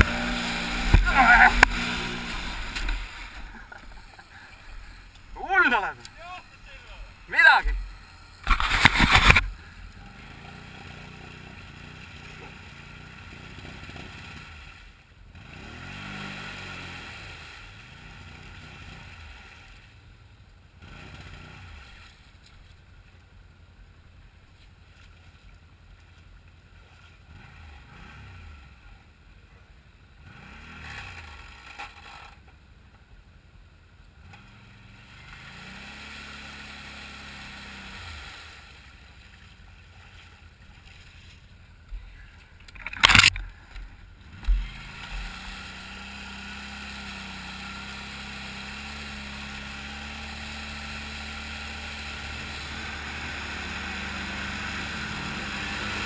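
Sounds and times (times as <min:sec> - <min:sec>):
quad engine revving: 0:00.0 - 0:19.6, 0:20.8 - 0:22.2, 0:27.2 - 0:28.8, 0:30.2 - 0:32.4, 0:34.2 - 0:39.0, 0:42.7 - 0:56.0
water sloshing and splashing: 0:01.6 - 0:05.3, 0:37.6 - 0:45.4.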